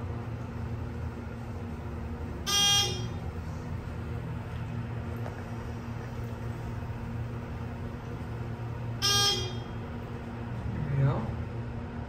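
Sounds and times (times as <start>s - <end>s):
elevator descending low hum: 0.0s - 12.0s
buzzy elevator arrival tone: 2.3s - 3.6s, 8.8s - 10.0s.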